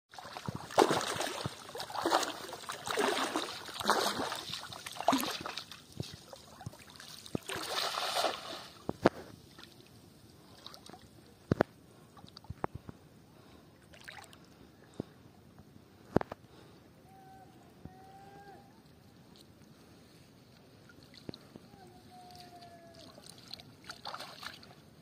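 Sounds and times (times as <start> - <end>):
bare feet splashing through water: 0.1 - 9.9, 13.9 - 14.4, 22.2 - 24.8.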